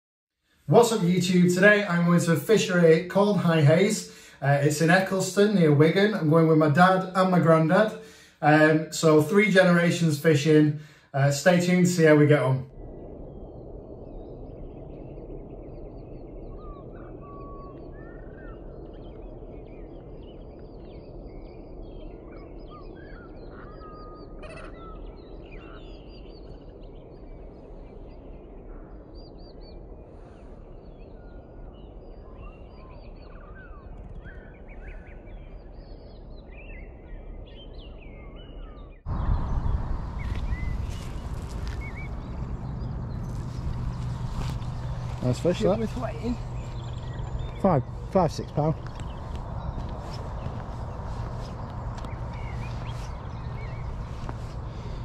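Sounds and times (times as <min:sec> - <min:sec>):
small birds singing: 0:13.3 - 0:55.0.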